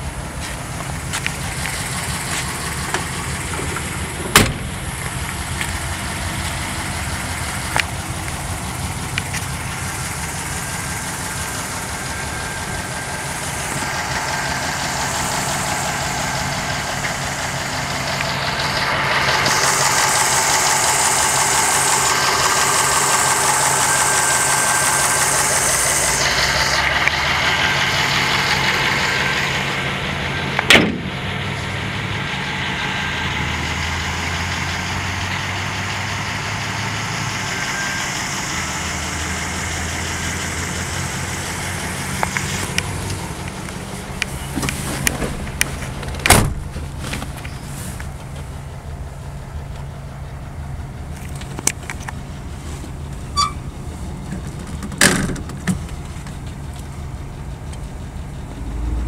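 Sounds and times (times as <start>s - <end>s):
car engine idling: 0.0s - 59.0s
hiss: 19.4s - 26.8s.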